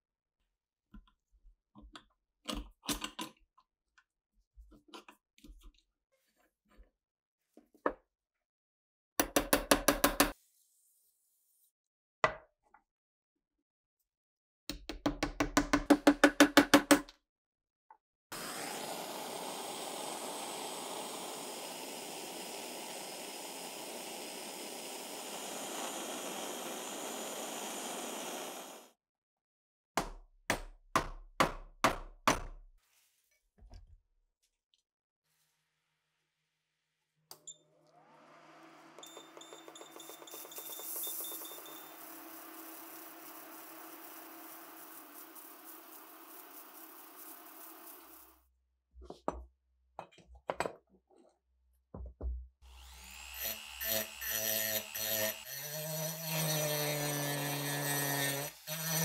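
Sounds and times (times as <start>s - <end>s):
gas torch hissing: 18.4s - 28.9s.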